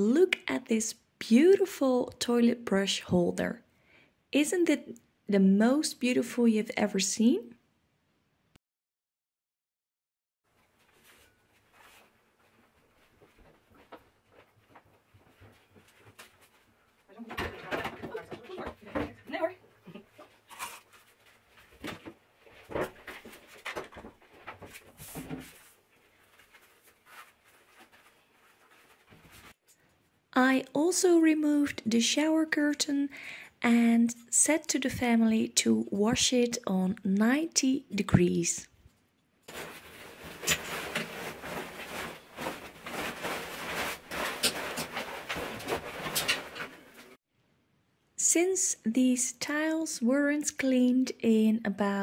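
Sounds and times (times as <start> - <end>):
fabric bath mat rustling: 10.5 - 17.1, 20.2 - 29.6, 39.5 - 47.2.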